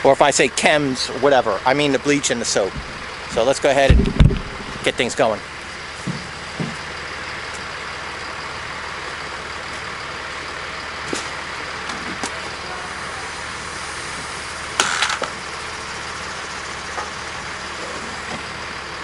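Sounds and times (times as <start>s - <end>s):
diesel engine droning: 0.0s - 19.0s
metallic clatter: 2.7s - 5.2s.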